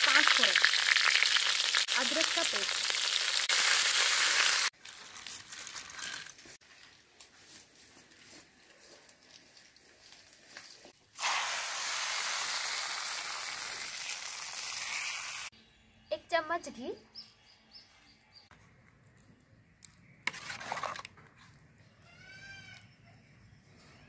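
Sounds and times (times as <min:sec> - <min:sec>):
spices sizzling in hot oil: 0:00.0 - 0:06.1, 0:11.2 - 0:15.5.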